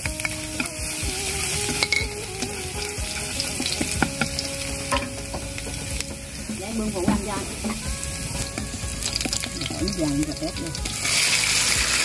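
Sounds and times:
garlic sizzling in hot oil: 0.0s - 12.0s
utensil knocking against pan: 3.3s - 6.2s.

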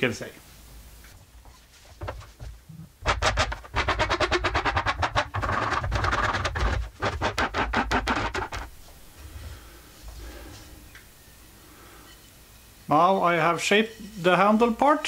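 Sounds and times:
hand file rasping on wood: 3.0s - 8.7s.

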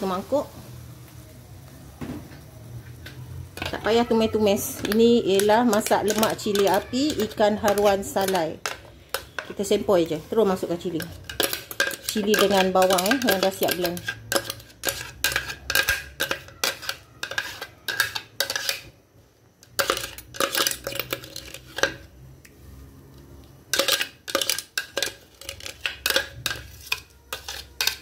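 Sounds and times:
utensil clinking and scraping metal pan: 3.5s - 19.0s, 19.6s - 22.1s, 23.7s - 28.0s.

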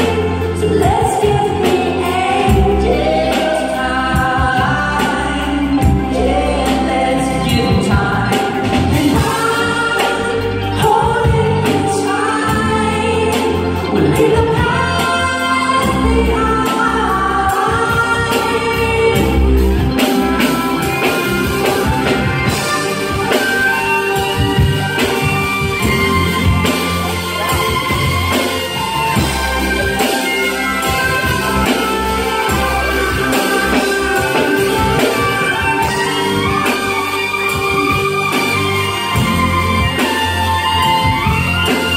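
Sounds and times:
bass line: 0.0s - 41.9s
drums: 0.0s - 41.9s
person singing: 0.0s - 41.9s
violin melody: 19.2s - 41.9s.

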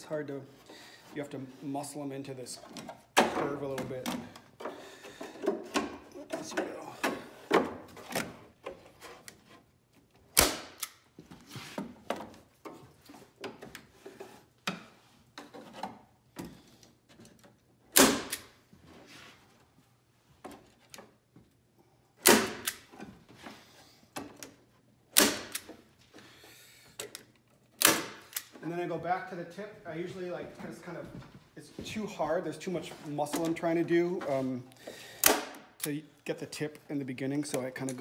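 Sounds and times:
staple gun snapping: 10.4s - 11.0s, 22.2s - 22.9s, 25.2s - 25.7s, 27.8s - 28.5s.

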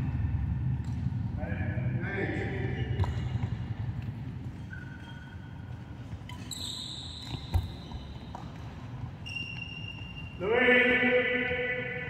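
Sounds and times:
low hum of hall: 0.0s - 12.0s
shoes squeaking on court: 2.6s - 10.4s.

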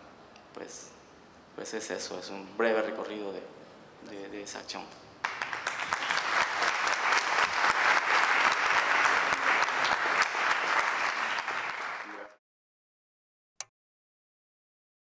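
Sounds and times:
audience applauding: 5.2s - 12.4s.

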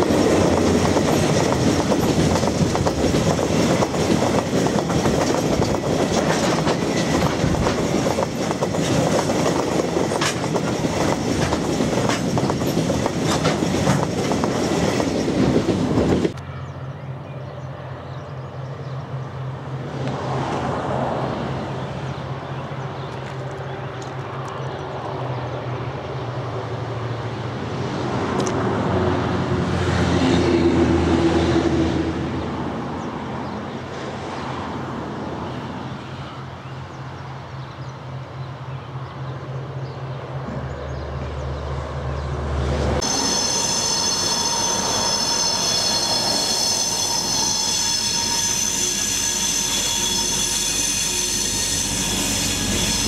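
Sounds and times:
freight train rolling past: 0.0s - 53.0s
high-pitched wheel squeal: 43.0s - 53.0s.

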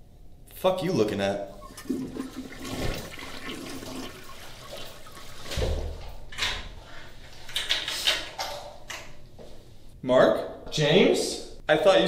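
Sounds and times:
toilet flushing: 1.5s - 6.6s.

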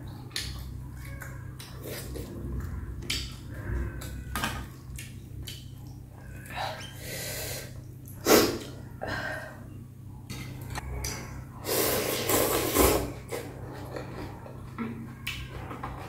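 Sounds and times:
steady low hum: 0.0s - 16.0s
person slurping noodles: 11.6s - 13.6s.

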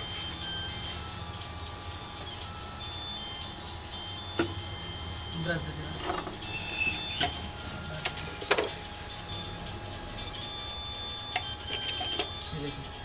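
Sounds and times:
steady low hum: 0.0s - 13.0s
hand tools clicking and tapping: 6.0s - 6.4s, 7.2s - 8.8s, 11.3s - 12.4s.

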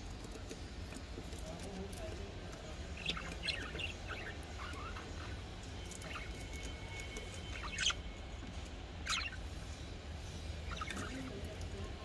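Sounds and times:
budgerigars chirping: 2.8s - 6.5s, 7.4s - 8.0s, 9.0s - 9.4s, 10.6s - 11.4s.

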